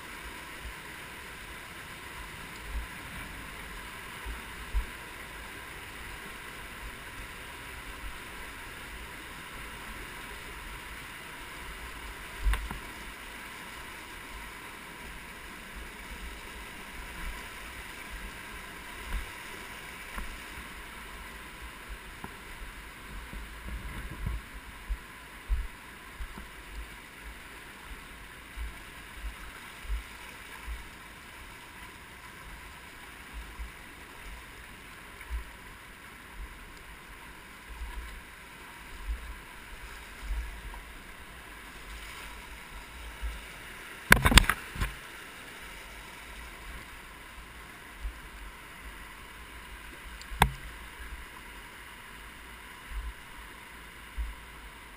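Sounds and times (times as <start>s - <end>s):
small click: 44.1s - 45.0s, 50.2s - 50.7s
thumps on microphone: 44.1s - 45.0s, 50.4s - 50.6s.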